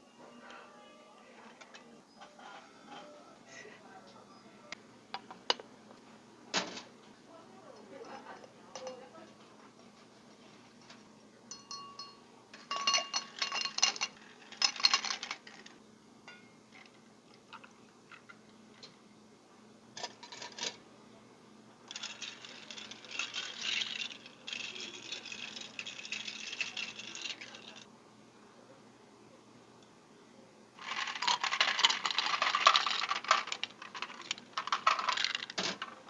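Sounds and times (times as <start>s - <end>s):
ice cubes clinking into a glass: 11.5s - 15.6s, 21.9s - 27.8s, 30.8s - 35.9s
iced tea poured over ice: 21.9s - 27.8s.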